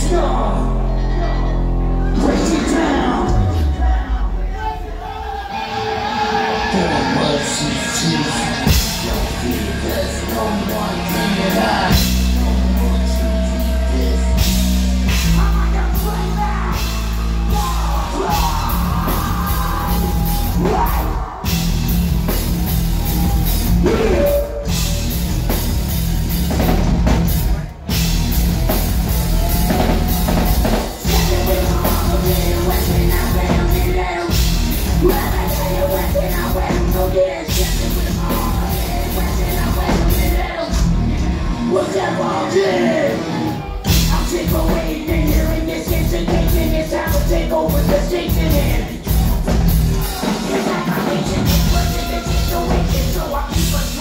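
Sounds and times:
bass guitar: 0.0 - 54.0
man singing: 6.2 - 21.6, 23.8 - 25.2, 30.4 - 54.0
drum kit: 8.2 - 41.7, 42.5 - 54.0.

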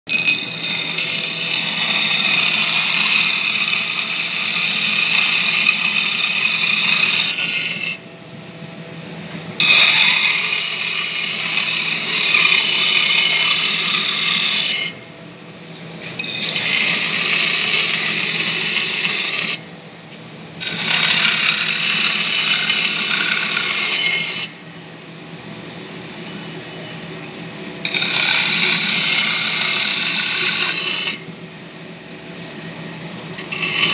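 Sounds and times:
glass grinding on disc: 0.1 - 8.0, 9.6 - 15.0, 16.0 - 19.6, 20.6 - 24.6, 27.8 - 31.3, 33.4 - 33.9.

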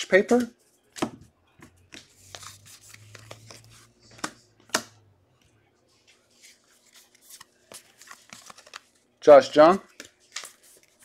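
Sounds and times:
cards rustling and sliding: 1.9 - 5.0, 6.0 - 9.0, 9.9 - 11.0.

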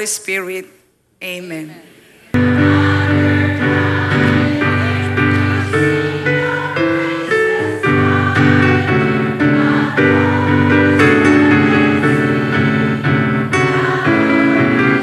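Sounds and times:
group singing a hymn: 2.3 - 15.0
electric keyboard chords: 2.4 - 15.0.

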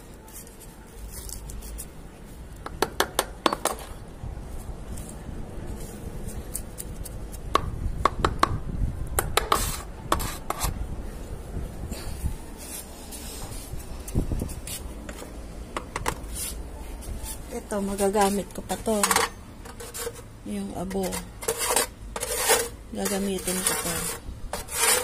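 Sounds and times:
knife scraping through dry soil: 9.4 - 10.8, 16.2 - 25.0.

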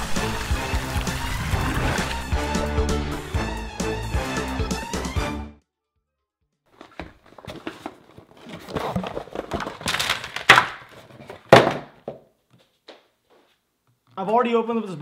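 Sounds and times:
packaging rustling: 6.8 - 11.5
box thunking on table: 6.8 - 12.2.

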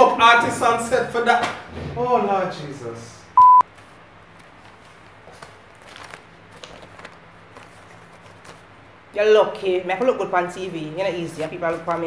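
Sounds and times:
low electrical hum: 0.0 - 12.0
faint clicks and rustles: 3.7 - 8.8.

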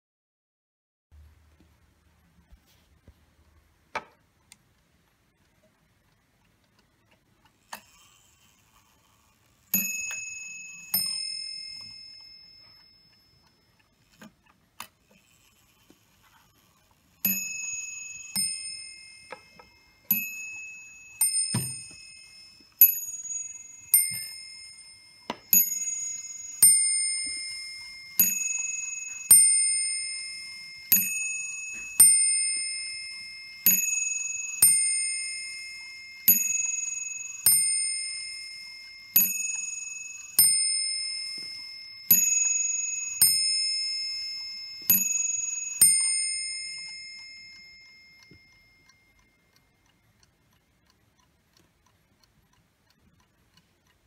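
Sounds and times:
clock striking on brass bell: 17.2 - 48.5.

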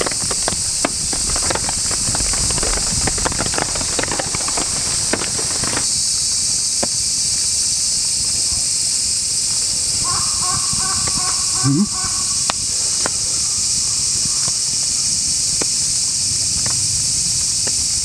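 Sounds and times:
rain ticks and pattering: 0.0 - 5.9.

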